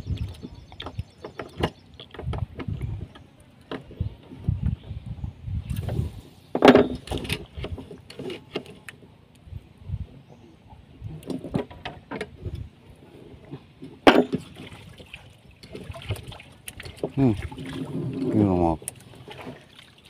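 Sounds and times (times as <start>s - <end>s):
knocks and thumps on boat: 0.0s - 4.9s, 5.9s - 8.4s, 13.6s - 14.9s
faint water wash: 14.4s - 20.0s.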